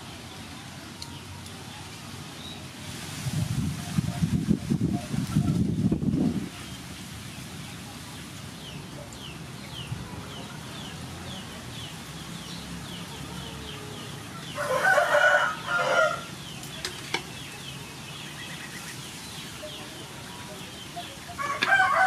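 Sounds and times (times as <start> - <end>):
rooster crowing: 14.4 - 16.4, 21.4 - 22.0.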